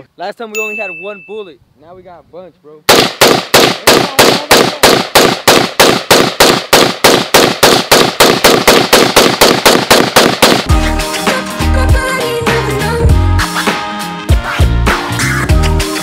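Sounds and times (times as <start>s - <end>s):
rapid rifle shots: 2.9s - 10.7s
music: 10.7s - 16.0s.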